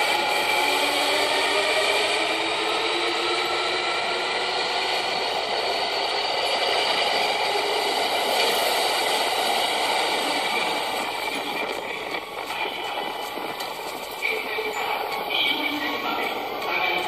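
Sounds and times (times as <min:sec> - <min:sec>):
electric train running: 0:00.0 - 0:17.0.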